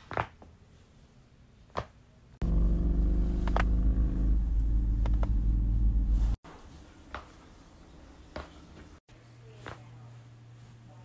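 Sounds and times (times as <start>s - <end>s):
loud low rumble: 2.4s - 6.4s.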